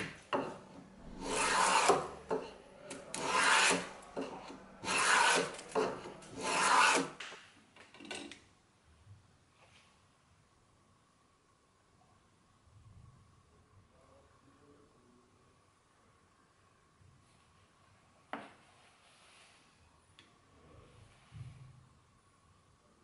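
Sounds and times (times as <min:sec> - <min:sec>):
hand plane shaving wood: 0:01.2 - 0:02.1, 0:03.2 - 0:07.2.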